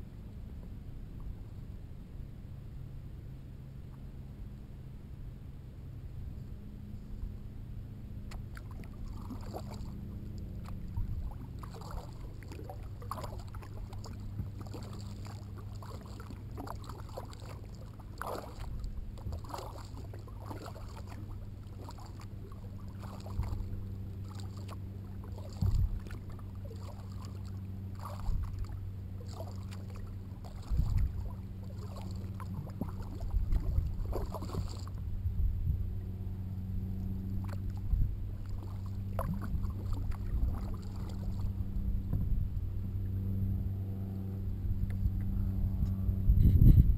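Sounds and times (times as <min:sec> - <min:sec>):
water running along hull: 0:00.0 - 0:46.2
steady low hum: 0:00.0 - 0:46.9
paddle splashing in water: 0:08.2 - 0:35.1, 0:37.0 - 0:42.3.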